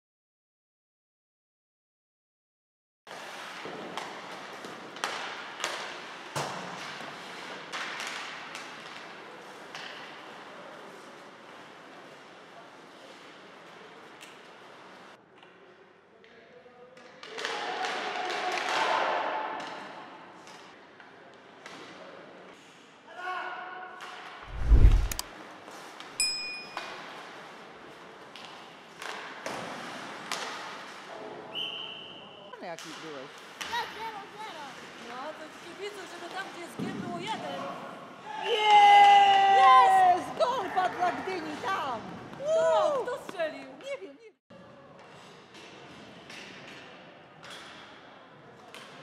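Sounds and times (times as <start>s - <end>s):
hockey sticks and puck clacking: 3.1s - 12.3s, 28.2s - 31.1s, 45.5s - 48.0s.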